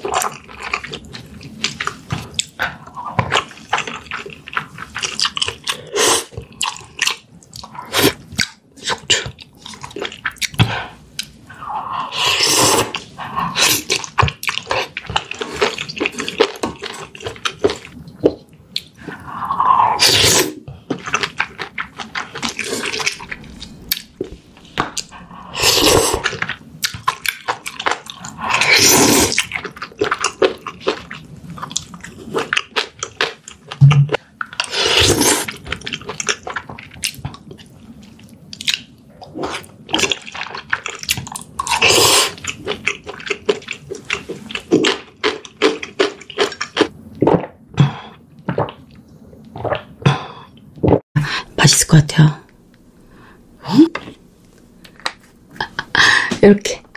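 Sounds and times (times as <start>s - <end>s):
noodle slurping: 19.0s - 31.2s.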